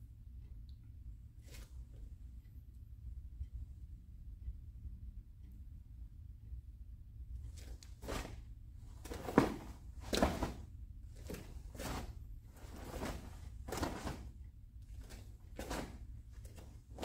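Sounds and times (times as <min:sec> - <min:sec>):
uniform swishing and snapping: 0:07.4 - 0:17.0.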